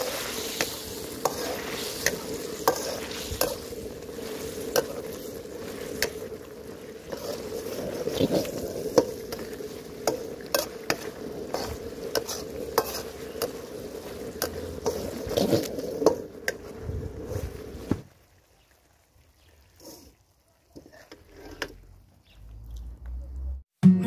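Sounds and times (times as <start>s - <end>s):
gas burner roaring: 0.0s - 17.9s
ladle scraping wok: 0.0s - 17.9s, 19.8s - 21.9s
sauce sizzling and bubbling: 0.0s - 23.0s.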